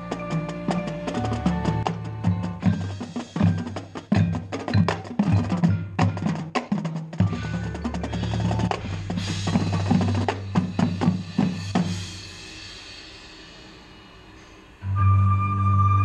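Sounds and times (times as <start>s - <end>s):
marching band music: 0.0s - 12.3s.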